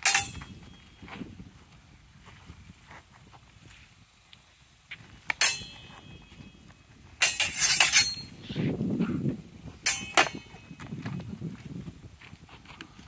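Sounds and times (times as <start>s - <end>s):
sword blades clashing: 0.0s - 0.6s, 5.4s - 6.2s, 7.2s - 8.4s, 9.8s - 10.7s.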